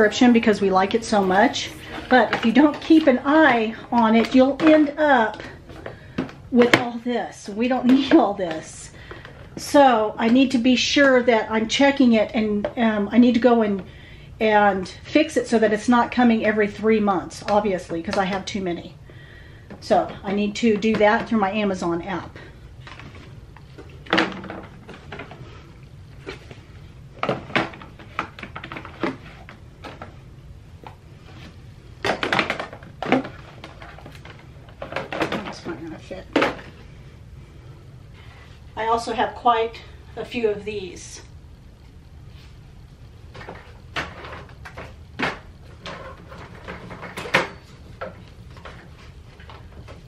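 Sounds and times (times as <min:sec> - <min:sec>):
plastic bottles clattering on wire shelf: 0:32.0 - 0:36.7, 0:43.4 - 0:50.0.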